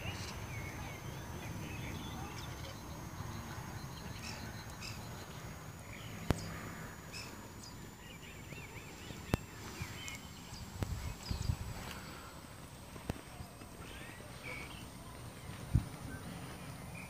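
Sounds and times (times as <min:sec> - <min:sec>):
low rumble of wind: 0:00.0 - 0:17.0
small birds chirping: 0:00.0 - 0:17.0
sharp clicks: 0:03.9 - 0:11.0.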